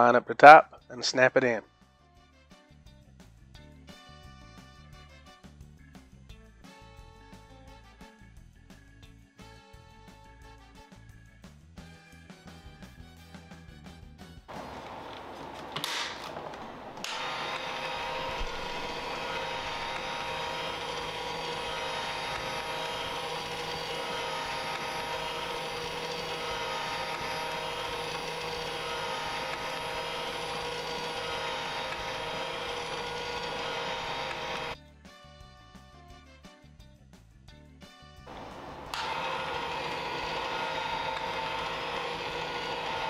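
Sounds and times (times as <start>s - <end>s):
toy motor humming: 16.4s - 34.8s, 38.3s - 43.0s.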